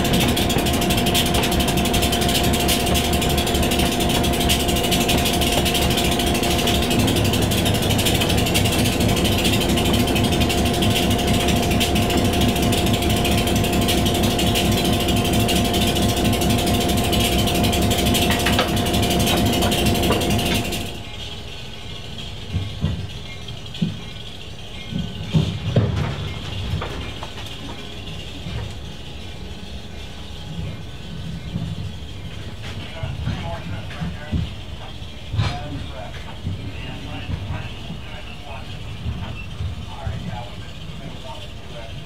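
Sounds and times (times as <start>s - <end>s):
mechanical rattle: 0.0s - 32.3s
diesel locomotive engine drone: 0.0s - 42.0s
steady whine: 0.0s - 42.0s.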